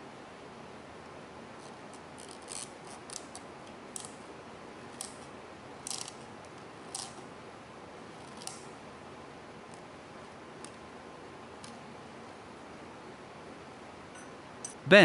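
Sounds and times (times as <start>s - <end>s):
steady low hiss: 8.7s - 15.0s.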